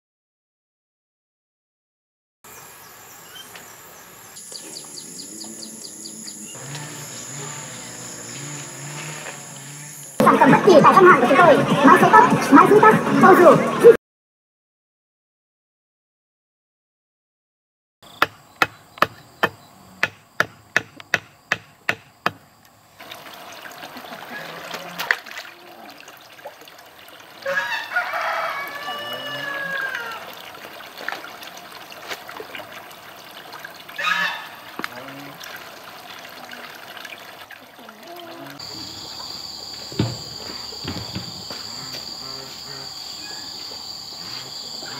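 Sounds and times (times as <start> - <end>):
bird chirping: 2.5 - 10.2
high insect drone: 2.5 - 10.2, 38.1 - 44.9
sharp knocks: 18.2 - 22.4, 39.9 - 41.6
water splashing: 22.9 - 43.0.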